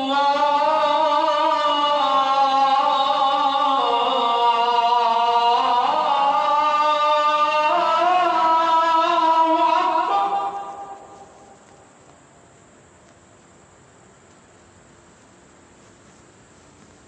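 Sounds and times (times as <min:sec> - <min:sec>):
man chanting call to prayer: 0:00.0 - 0:11.7.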